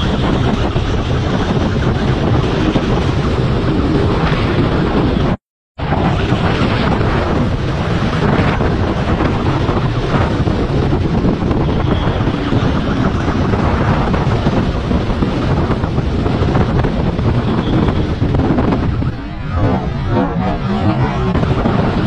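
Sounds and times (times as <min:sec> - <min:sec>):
motorcycle running: 0:00.0 - 0:05.2, 0:05.9 - 0:22.0
wind buffeting microphone: 0:00.0 - 0:22.0.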